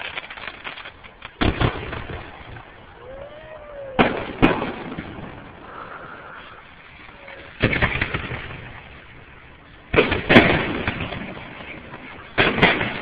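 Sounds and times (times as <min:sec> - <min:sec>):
firework bangs: 0:00.0 - 0:13.0.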